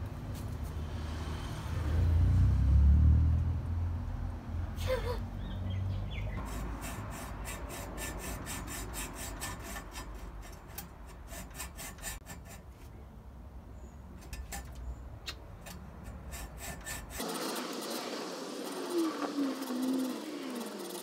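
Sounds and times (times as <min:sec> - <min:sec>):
hacksaw cutting metal tube: 0:06.4 - 0:12.7, 0:15.6 - 0:21.0.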